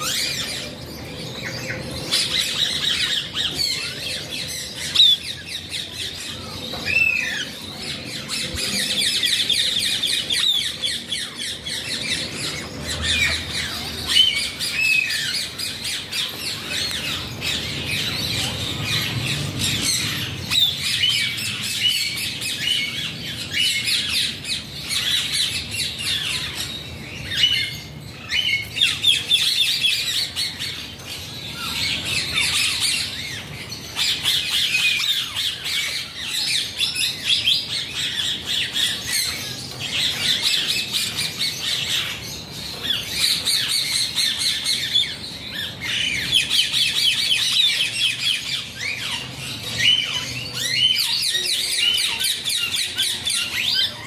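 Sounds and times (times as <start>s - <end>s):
parakeets chattering and squawking: 0.0s - 54.0s.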